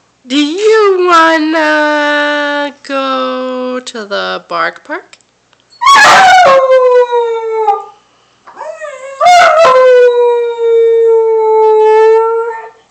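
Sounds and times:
puppy howling: 0:05.8 - 0:08.0, 0:08.6 - 0:12.8.

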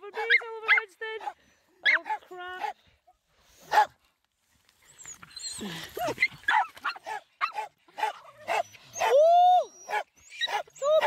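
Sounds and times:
dog barking: 0:03.7 - 0:03.9, 0:06.5 - 0:08.7.

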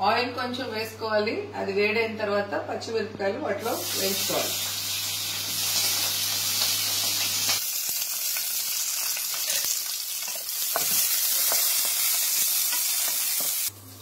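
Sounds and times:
chillies sizzling in hot oil: 0:03.6 - 0:14.0.

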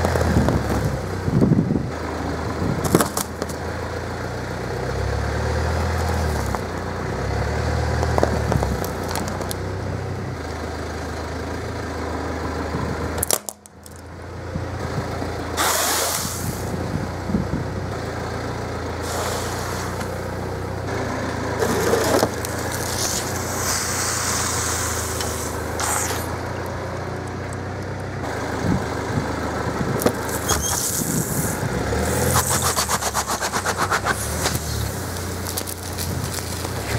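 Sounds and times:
car engine idling: 0:00.0 - 0:36.9
tyre crushing objects: 0:02.8 - 0:03.6, 0:21.6 - 0:23.5, 0:32.3 - 0:36.9.

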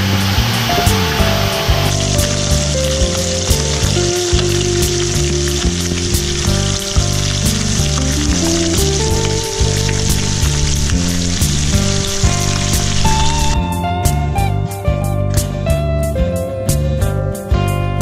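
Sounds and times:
fish sizzling in oil: 0:00.0 - 0:13.6
background music with bass line: 0:00.0 - 0:18.0.

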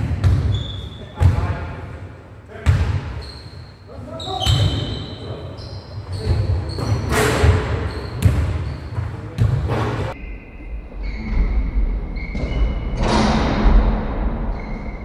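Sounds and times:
basketballs bouncing in a hall: 0:00.0 - 0:10.2.

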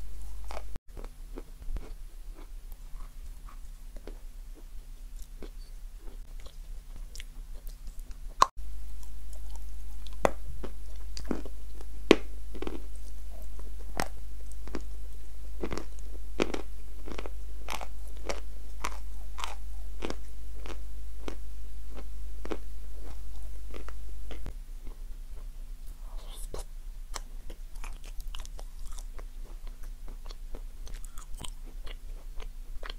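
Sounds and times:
steady low hum: 0:00.0 - 0:32.9
chewing mouth clicks and smacks: 0:27.1 - 0:32.9.

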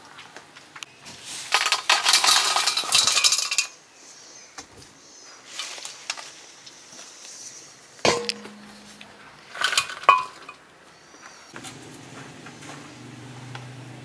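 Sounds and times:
steel dishes clinking: 0:01.6 - 0:03.7, 0:08.1 - 0:10.6.

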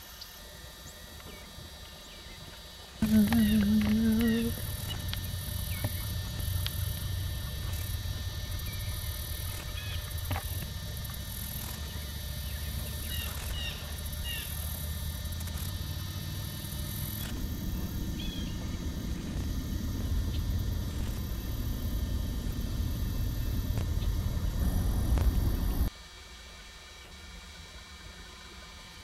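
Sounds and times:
steady low rumble: 0:03.0 - 0:25.9.

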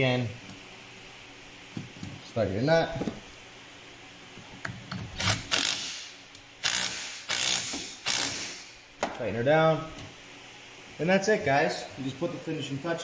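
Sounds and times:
hand ratchet clicking: 0:06.6 - 0:08.6.

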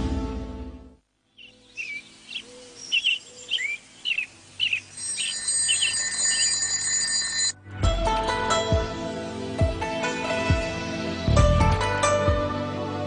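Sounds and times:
birds chirping: 0:01.3 - 0:07.5
alarm clock ringing: 0:05.0 - 0:07.6.

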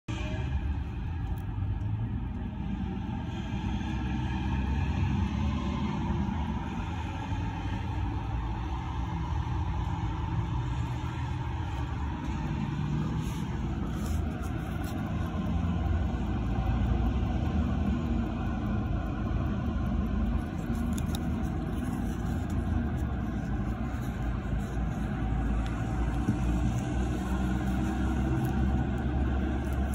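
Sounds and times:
steady low rumble: 0:00.1 - 0:29.9
faint clicks: 0:06.3 - 0:29.9.

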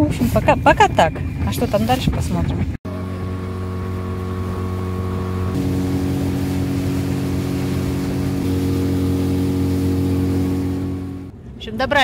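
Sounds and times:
boat motor running: 0:02.6 - 0:11.3.

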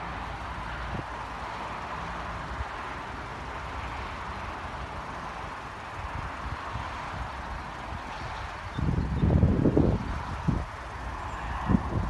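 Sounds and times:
steady rushing noise: 0:00.0 - 0:12.0
wind buffeting microphone: 0:06.0 - 0:12.0.

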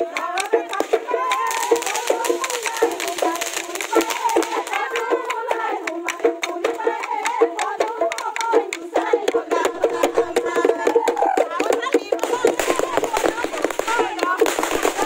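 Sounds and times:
loud festive music: 0:00.0 - 0:07.4, 0:09.3 - 0:15.0
sharp irregular cracks: 0:00.8 - 0:04.8, 0:12.2 - 0:15.0
crowd voices: 0:09.5 - 0:15.0.

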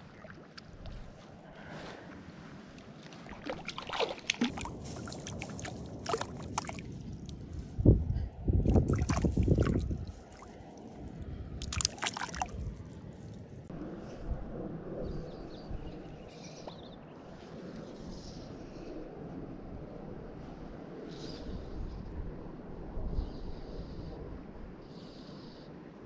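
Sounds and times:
water sloshing and splashing: 0:00.0 - 0:01.2, 0:03.0 - 0:07.4, 0:08.7 - 0:13.4
water dripping: 0:03.3 - 0:07.4, 0:08.7 - 0:10.6, 0:11.6 - 0:12.9.

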